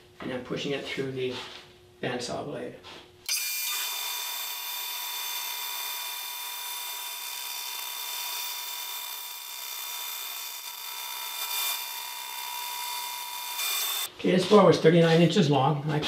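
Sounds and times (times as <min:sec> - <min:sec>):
band saw cutting wood: 0:03.3 - 0:14.1.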